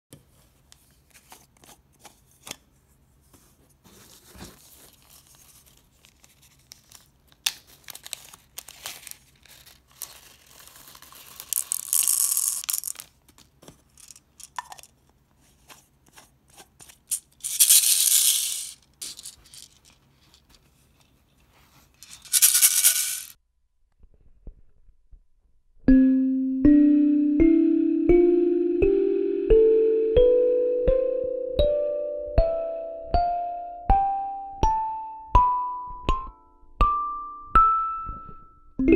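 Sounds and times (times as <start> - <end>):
plastic balls rattling in shaker: 7.8 - 15.0, 16.8 - 20.5, 22.0 - 23.4.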